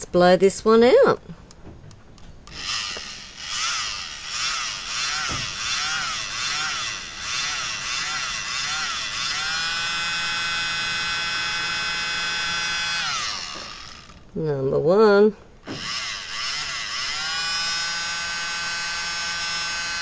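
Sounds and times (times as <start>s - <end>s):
mini blower motor whining: 2.5s - 14.3s, 15.6s - 20.0s.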